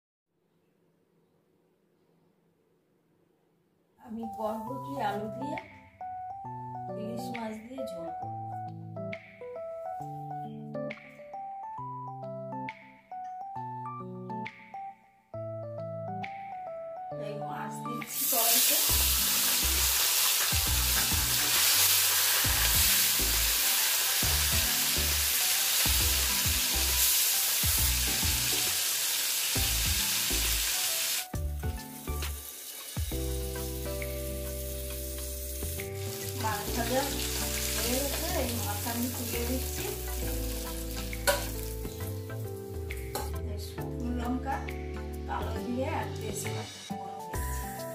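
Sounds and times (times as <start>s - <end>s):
background music: 4.0s - 47.9s
fish sizzling in hot oil: 18.1s - 42.7s.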